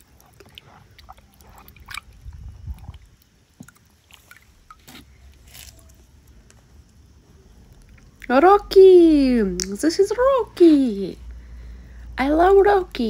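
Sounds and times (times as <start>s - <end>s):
water sloshing in plastic tub: 0.0s - 6.4s.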